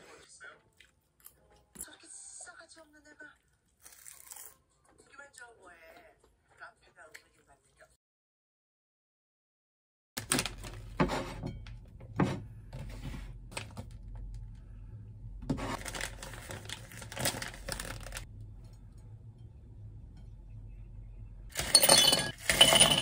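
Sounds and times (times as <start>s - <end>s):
low steady hum: 10.5s - 23.0s
plastic wrappers crinkling: 15.8s - 18.3s.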